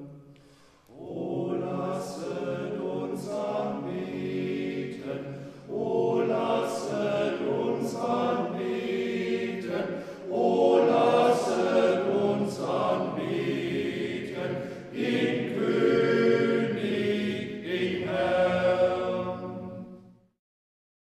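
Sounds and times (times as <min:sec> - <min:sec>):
choir singing a chant: 0:00.9 - 0:20.1.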